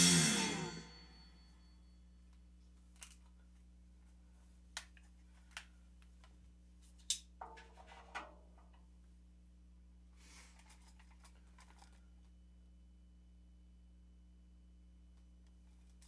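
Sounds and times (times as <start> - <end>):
low hum: 0.0 - 2.3.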